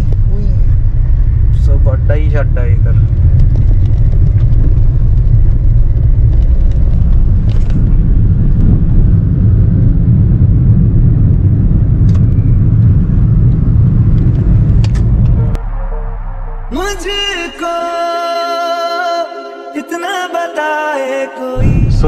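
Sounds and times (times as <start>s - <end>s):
car cabin road and engine rumble: 0.0s - 17.4s.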